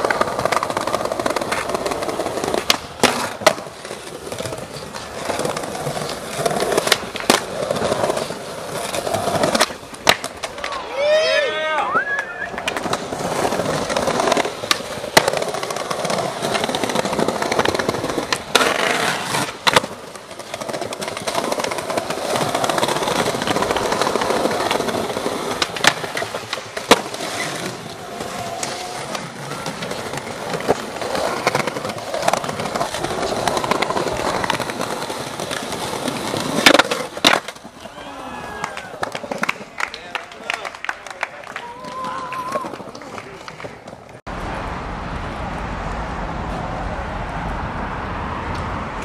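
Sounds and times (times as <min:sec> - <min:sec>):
skateboard sliding on stone ledge: 0:00.0 - 0:11.4, 0:12.0 - 0:39.7
skateboard clacks: 0:00.0 - 0:44.2
skateboard wheels rolling on stone: 0:00.0 - 0:44.6.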